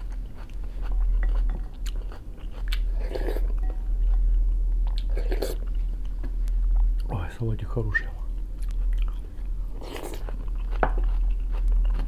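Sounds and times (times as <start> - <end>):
chewing and wet mouth sounds: 0.0 - 7.1, 8.5 - 12.0
steady low hum: 0.0 - 12.0
slurping: 2.7 - 3.5, 5.0 - 5.7.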